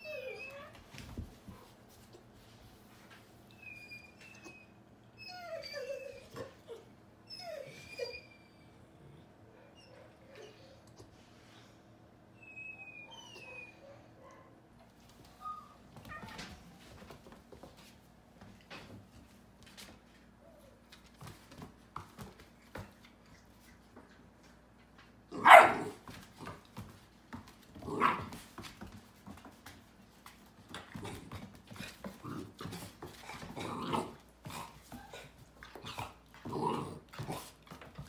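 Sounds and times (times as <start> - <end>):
paws scrabbling on wooden floor: 0.4 - 3.5, 14.8 - 38.0
puppy barking: 25.3 - 26.0.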